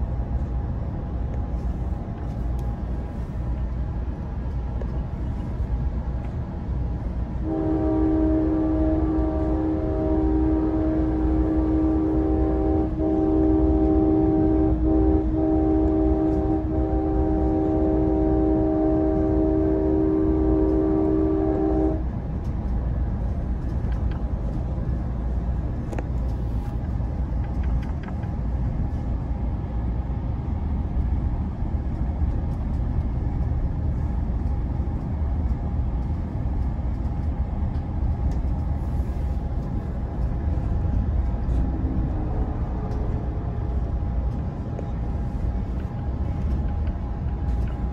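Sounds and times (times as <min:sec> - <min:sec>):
train rumbling on rails: 0:00.0 - 0:47.9
train horn chord: 0:07.4 - 0:22.1, 0:41.5 - 0:43.8.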